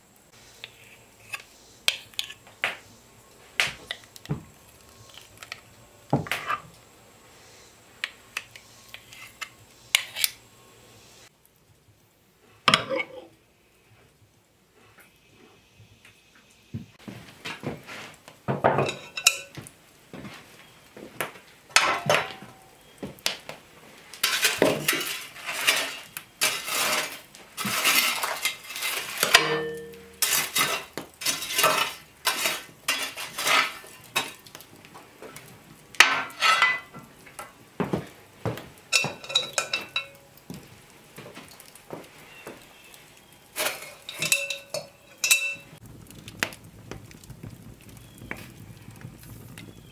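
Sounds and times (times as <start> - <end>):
iron tools clanking and scraping: 17.4 - 19.7, 21.7 - 22.7, 24.2 - 34.5, 36.0 - 37.0, 38.9 - 40.3, 43.5 - 45.8.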